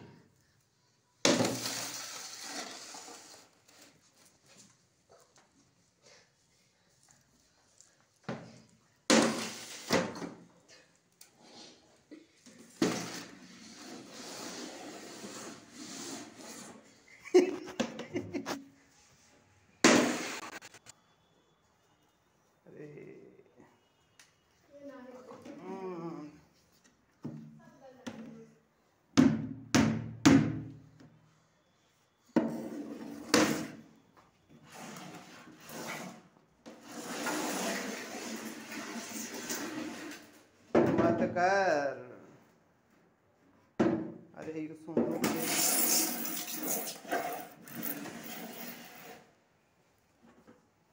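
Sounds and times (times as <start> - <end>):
bucket scraping across tiled floor: 1.3 - 4.1, 9.3 - 10.1, 12.7 - 16.9, 32.4 - 33.8, 34.6 - 40.5, 45.2 - 49.4.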